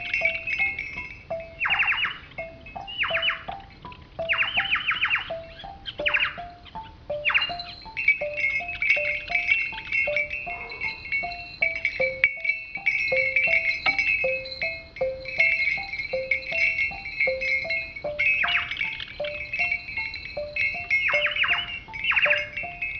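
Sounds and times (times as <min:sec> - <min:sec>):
high ringing tone: 0:00.0 - 0:22.9.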